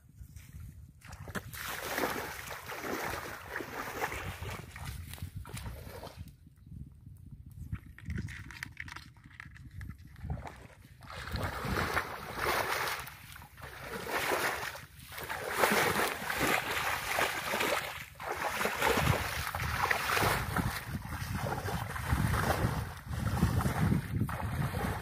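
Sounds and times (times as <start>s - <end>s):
wind rumble on microphone: 0.0s - 25.0s
water splashing from wading: 1.0s - 6.2s, 10.4s - 25.0s.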